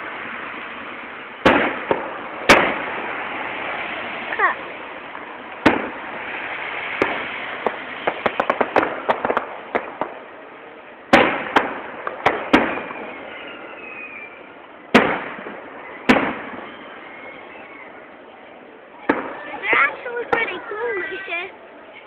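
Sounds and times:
fireworks bangs with echo: 0.0s - 18.1s, 18.9s - 20.9s.

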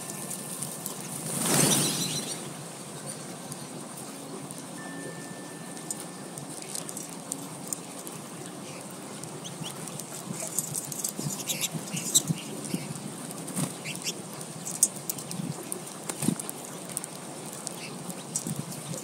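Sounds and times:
bird wing flutters: 0.0s - 2.5s, 10.4s - 14.1s
high bird twitters: 1.0s - 2.5s, 11.0s - 13.0s.

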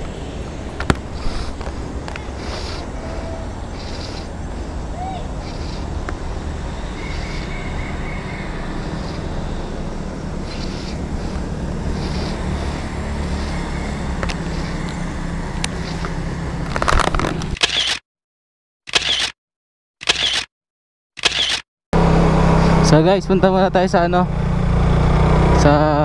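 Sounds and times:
rushing noise: 0.0s - 17.3s
motorcycle engine running: 0.0s - 17.4s, 22.0s - 26.0s.

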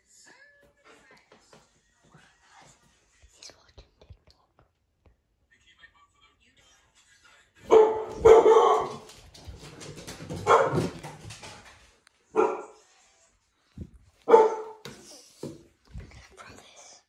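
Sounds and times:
dog barking: 7.6s - 9.3s, 10.1s - 11.2s, 12.3s - 12.8s, 14.2s - 14.9s.

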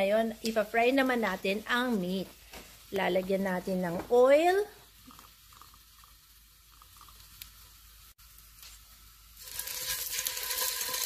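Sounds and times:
meat sizzling in hot oil: 4.2s - 11.0s.

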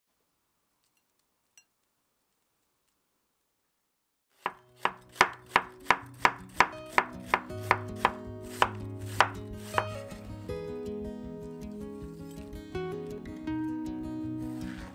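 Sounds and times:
knife chopping on cutting board: 4.4s - 10.1s.

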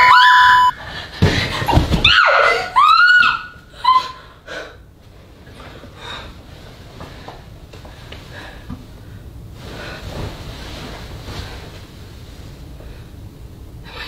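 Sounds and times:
steady low hum: 3.5s - 14.0s
duvet and sheets rustling: 5.0s - 13.6s.

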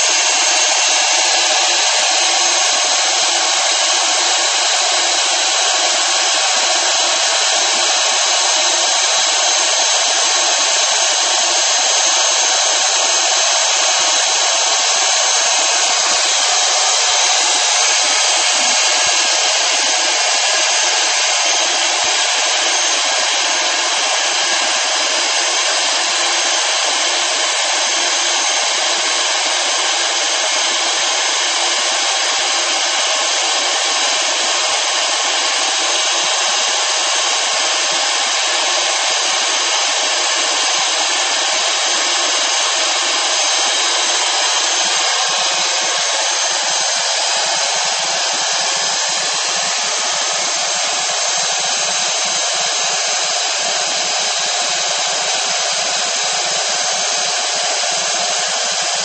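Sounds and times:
heat gun blowing: 0.0s - 59.0s.

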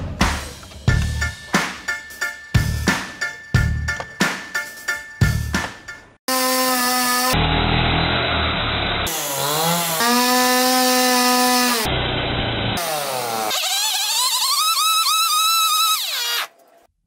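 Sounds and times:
chainsaw running at high revs: 7.3s - 13.5s.

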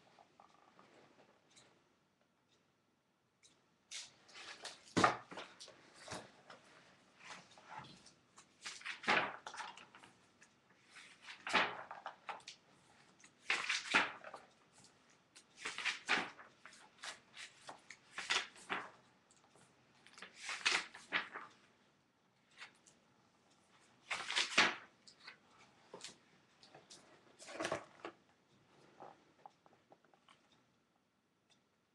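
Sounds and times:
book pages turning: 3.9s - 10.2s, 10.9s - 21.6s, 24.0s - 28.2s.

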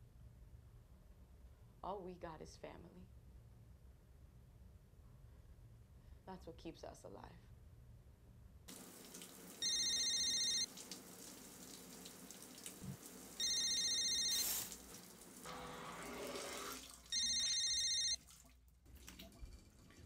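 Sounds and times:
shower running: 8.7s - 17.6s
mobile phone ringing: 9.6s - 10.7s, 13.4s - 14.7s, 17.1s - 18.2s.

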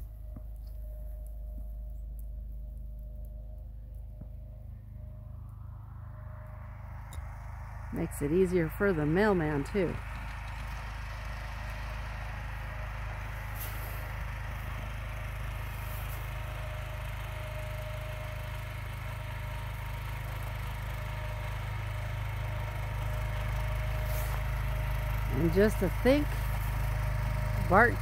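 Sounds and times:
garden tractor engine running: 0.0s - 28.0s.

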